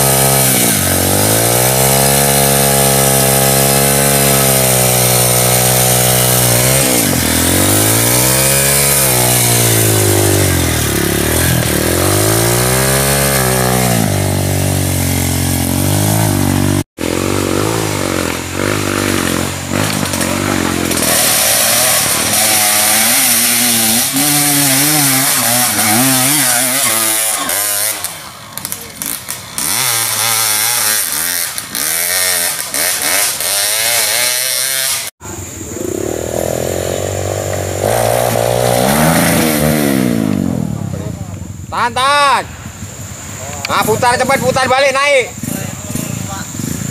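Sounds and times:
dirt bike engine revving: 0:00.0 - 0:46.9
dirt bikes revving in bursts: 0:00.0 - 0:46.9.

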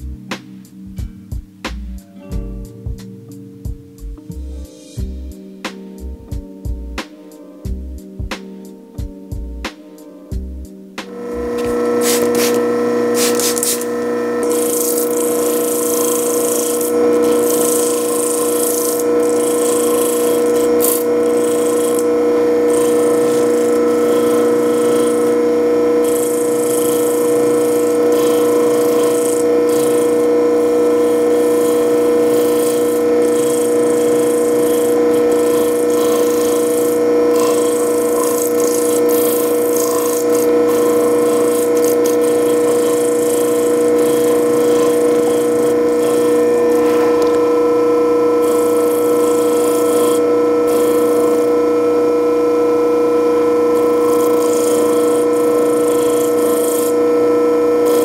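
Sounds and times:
stone rubbing on spinning disc: 0:11.1 - 0:52.0, 0:53.4 - 0:58.0
motor humming: 0:11.1 - 0:58.0.

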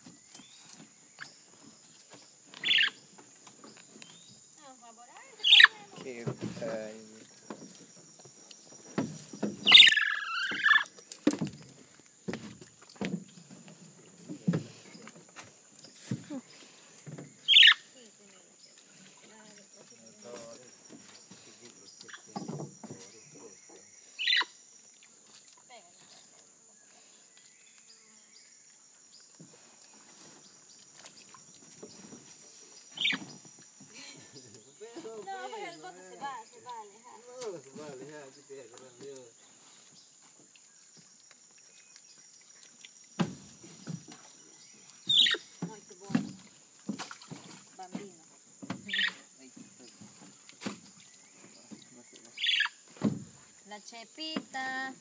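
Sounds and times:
monkey squealing: 0:05.4 - 0:05.9, 0:09.6 - 0:10.9, 0:17.5 - 0:17.8, 0:24.2 - 0:24.5, 0:45.1 - 0:45.4, 0:48.9 - 0:49.2
soft knocks and rustles: 0:06.0 - 0:09.7.

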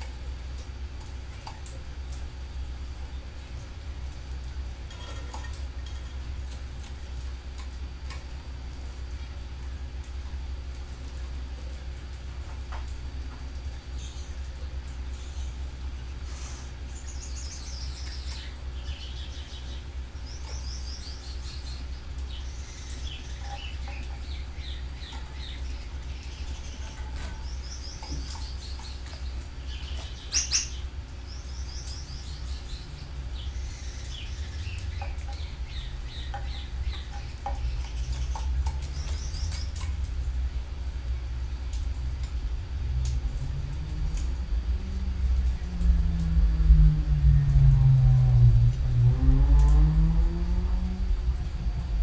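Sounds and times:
canaries chirping and trilling: 0:17.1 - 0:39.8
low rumble: 0:39.8 - 0:52.0.

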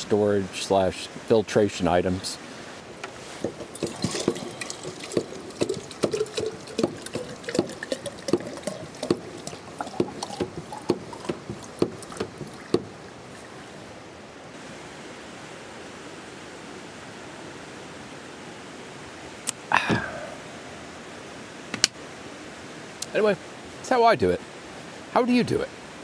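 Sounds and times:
steady hiss: 0:00.0 - 0:05.9
hand water pump clacking: 0:03.0 - 0:13.7.

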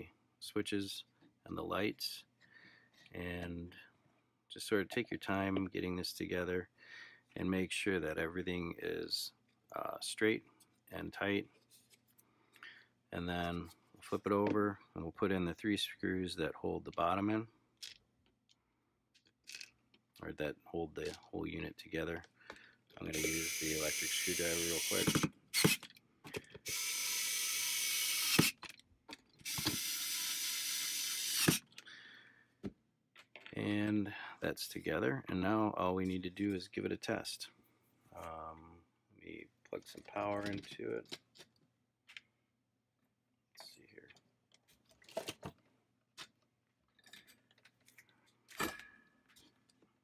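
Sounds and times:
electric screwdriver running: 0:23.2 - 0:25.8, 0:26.6 - 0:28.6, 0:29.4 - 0:31.6
clicks and knocks of plastic handling: 0:39.8 - 0:42.3.

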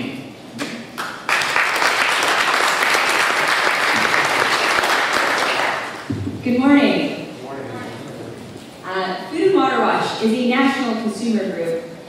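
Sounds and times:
audience applauding: 0:01.0 - 0:06.1.

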